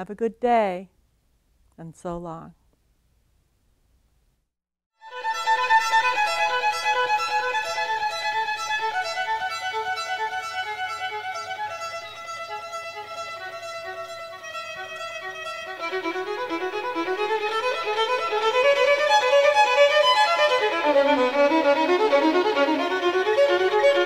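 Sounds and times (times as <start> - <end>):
instrumental music: 5.0 - 24.0.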